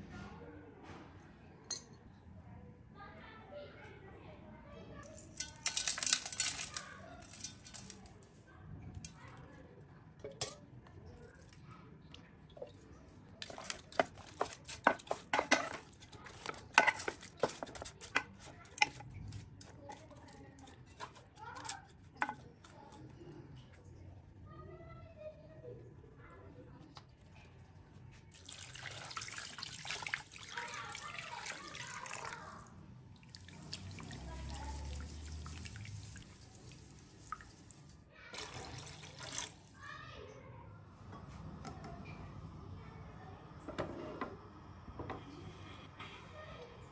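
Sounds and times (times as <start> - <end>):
water pouring into a pot: 12.4 - 18.0, 28.3 - 39.8
wooden spatula scraping metal pan: 13.4 - 19.1.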